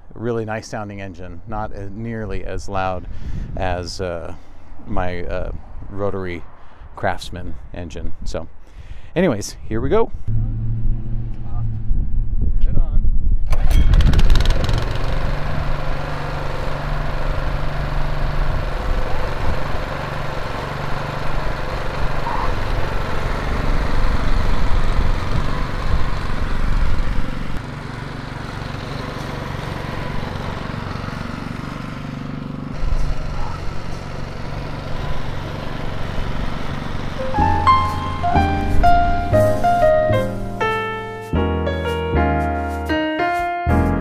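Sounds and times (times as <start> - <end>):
lawn mower engine running: 13.5 - 40.4.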